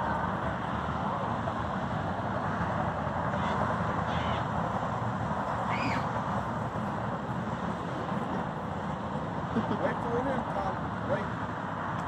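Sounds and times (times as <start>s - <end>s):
passing traffic: 0.0s - 12.0s
bird calling: 5.7s - 6.1s.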